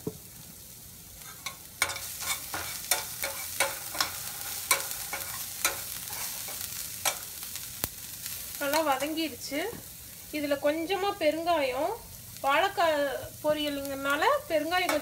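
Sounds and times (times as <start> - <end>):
food sizzling in oil: 0.0 - 15.0
metal spoon scraping a pan: 1.2 - 7.4, 14.6 - 15.0.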